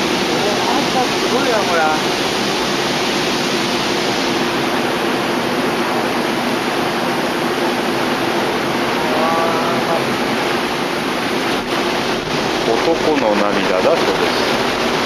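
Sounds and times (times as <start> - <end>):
boat engine humming: 0.0 - 15.0
wind and water rushing: 0.0 - 15.0
faint voice: 9.0 - 10.1.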